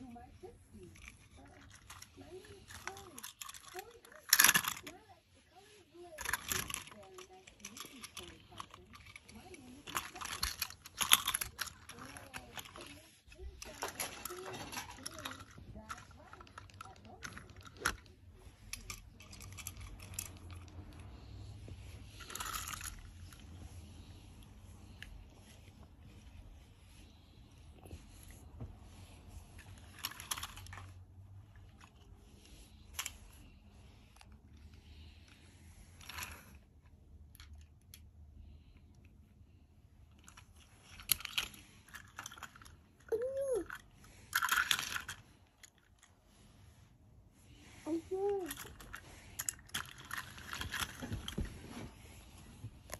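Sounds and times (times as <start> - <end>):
toy trains clicking and clattering: 0.0 - 27.0, 29.0 - 31.0, 31.6 - 36.6, 37.3 - 38.1, 40.1 - 46.1, 47.8 - 51.6
metal toy trains clinking: 0.9 - 5.0
bedsheet rustling: 46.1 - 52.9.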